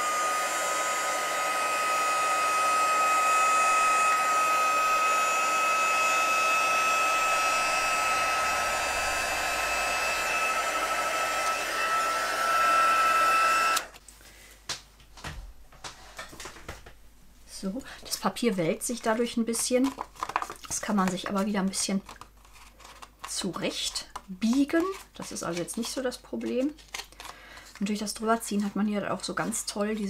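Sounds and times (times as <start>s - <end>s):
heat gun fan whining: 0.0s - 14.0s.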